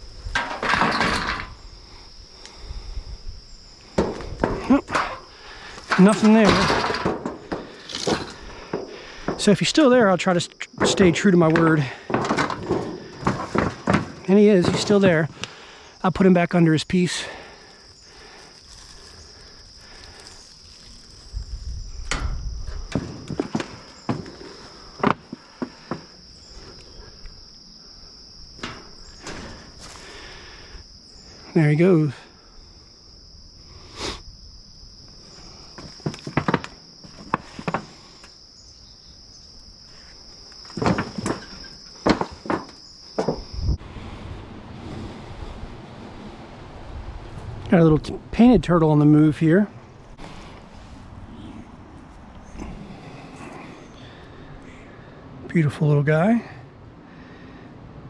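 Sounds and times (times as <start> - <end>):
insects droning: 0.0 - 58.0
footsteps on tin and dry leaves: 5.7 - 15.4, 18.2 - 21.4.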